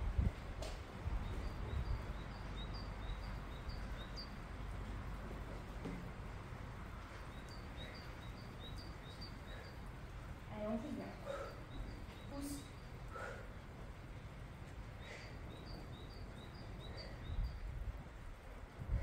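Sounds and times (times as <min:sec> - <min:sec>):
small bird chirping: 0:01.2 - 0:04.4, 0:07.2 - 0:09.9, 0:10.6 - 0:13.0, 0:15.0 - 0:17.7.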